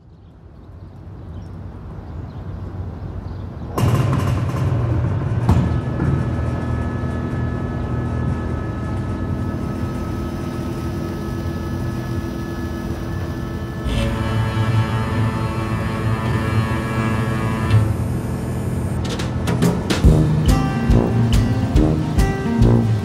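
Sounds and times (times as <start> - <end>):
cinematic hits: 3.8 - 10.4, 13.8 - 23.0
low drone with held tones: 3.8 - 23.0
low rumble: 3.8 - 23.0.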